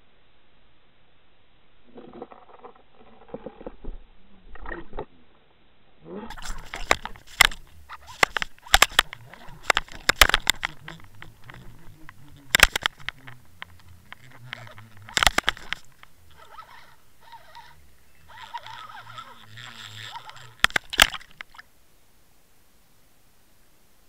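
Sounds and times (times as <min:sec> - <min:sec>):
faint hum: 0:00.0 - 0:24.0
sharp knocks and rattles: 0:06.3 - 0:21.6.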